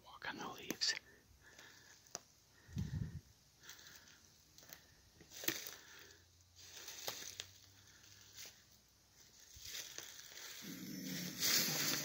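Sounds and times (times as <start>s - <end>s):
footsteps on dry leaves: 3.7s - 12.0s.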